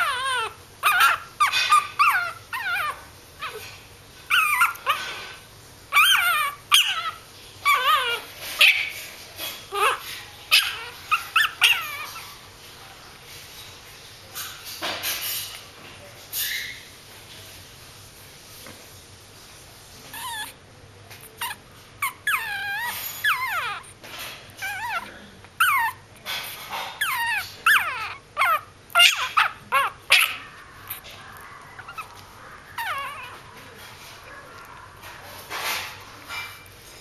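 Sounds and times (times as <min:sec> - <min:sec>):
puppy yipping and whining: 0:00.0 - 0:05.3, 0:05.9 - 0:12.4, 0:20.1 - 0:20.6, 0:21.3 - 0:24.0, 0:24.6 - 0:36.6.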